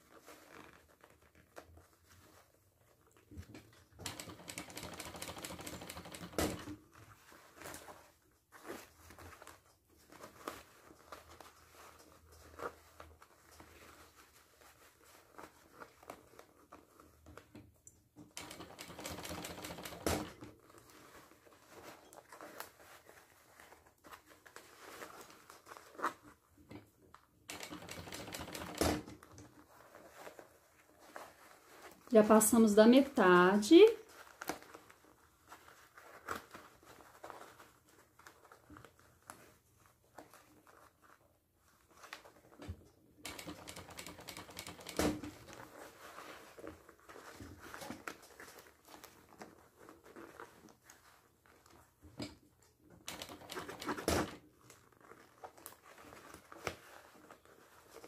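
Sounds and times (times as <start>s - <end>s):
sewing machine stitching: 4.0s - 6.8s, 18.3s - 20.5s, 27.5s - 29.2s, 43.2s - 45.5s, 53.0s - 54.4s.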